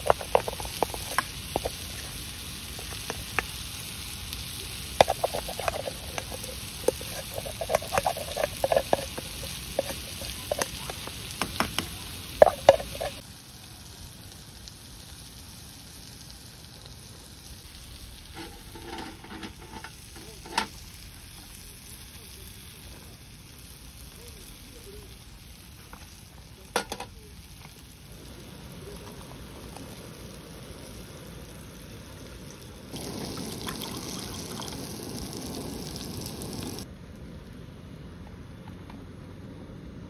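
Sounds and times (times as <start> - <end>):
food sizzling in a pan: 0.0 - 36.9
utensils clattering against pan: 5.0 - 13.2, 18.4 - 20.7.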